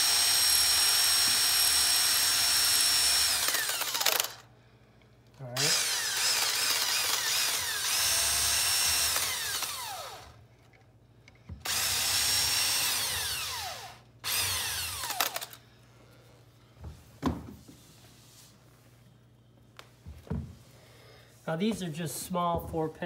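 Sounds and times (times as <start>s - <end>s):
cordless drill running: 0.0s - 4.5s, 5.6s - 10.4s, 11.6s - 15.6s.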